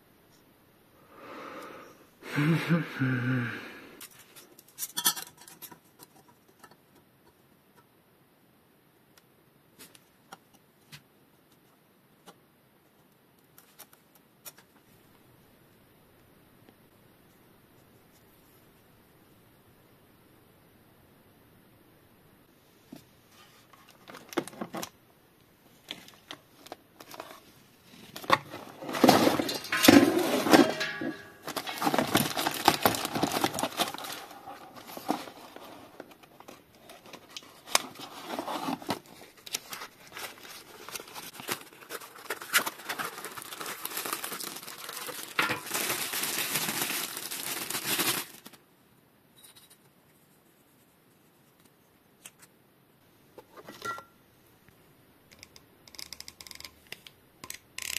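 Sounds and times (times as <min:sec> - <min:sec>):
cardboard and plastic packaging crinkling: 0:23.6 - 0:25.0, 0:25.8 - 0:48.6.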